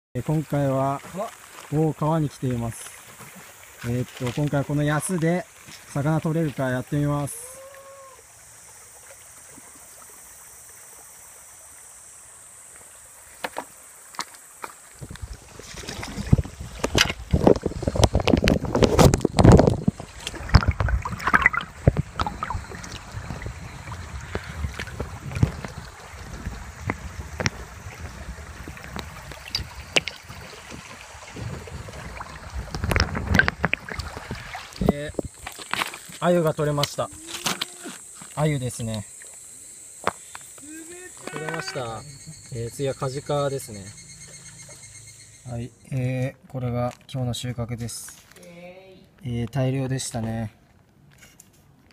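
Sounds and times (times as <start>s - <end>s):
water splashes: 0.2s - 45.8s
shallow river flowing: 0.2s - 45.9s
sharp underwater clicks and knocks: 13.4s - 23.4s, 24.3s - 25.8s, 26.4s - 27.6s, 28.8s - 30.3s, 32.6s - 37.7s
muffled underwater water rush: 14.8s - 37.1s.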